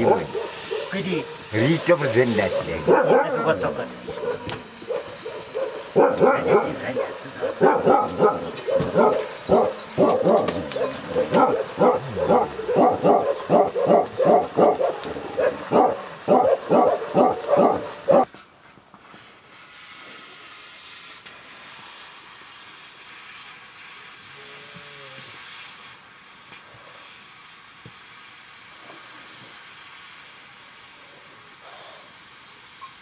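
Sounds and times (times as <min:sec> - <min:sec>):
dog barking: 0:00.0 - 0:18.3
faint steady hiss: 0:00.0 - 0:33.0.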